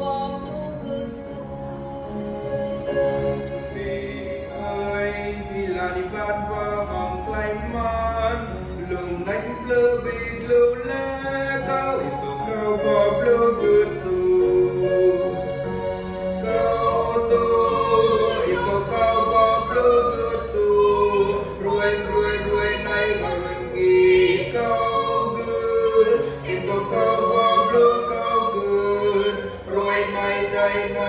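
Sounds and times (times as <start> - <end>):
electronic keyboard: 0.0 - 31.0
people singing a hymn: 16.5 - 31.0.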